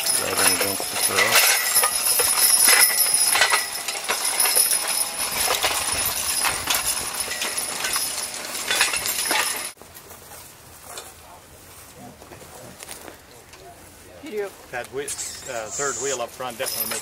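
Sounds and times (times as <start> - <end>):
harness metal jingling: 0.0 - 9.8, 14.3 - 17.0
hoof clops on hard ground: 0.0 - 9.8.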